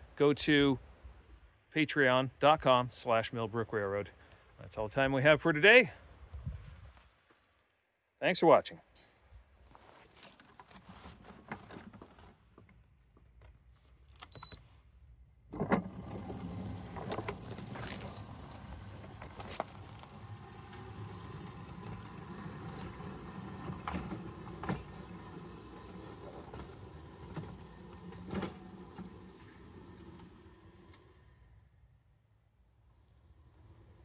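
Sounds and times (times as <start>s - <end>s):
miniature locomotive motor hum: 15.8s - 34.0s.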